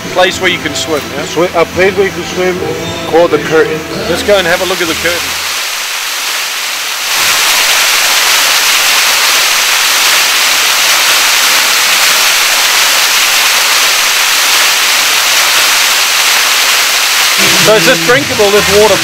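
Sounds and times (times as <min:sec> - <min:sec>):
water falling and splashing: 0:04.1 - 0:19.0.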